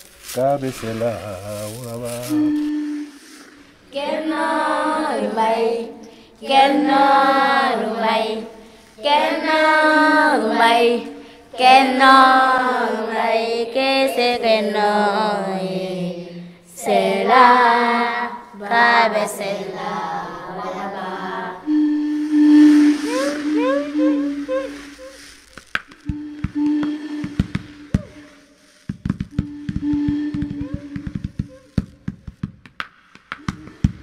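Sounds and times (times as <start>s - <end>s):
children singing: 3.9s - 25.1s.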